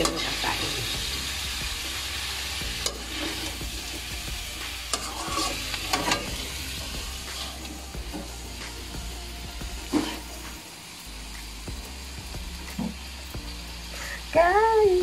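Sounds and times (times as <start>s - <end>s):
metal spatula scraping wok: 0.0s - 8.5s, 9.8s - 10.4s
food sizzling in a wok: 0.0s - 15.0s.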